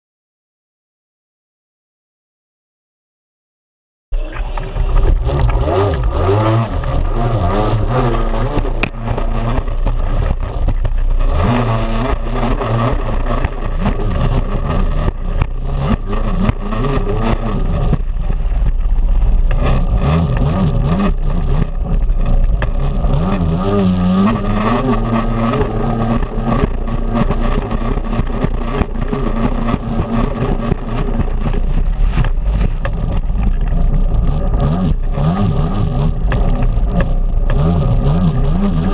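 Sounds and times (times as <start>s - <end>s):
water rushing and spraying: 4.2s - 11.6s
jet ski engine revving: 4.2s - 38.9s.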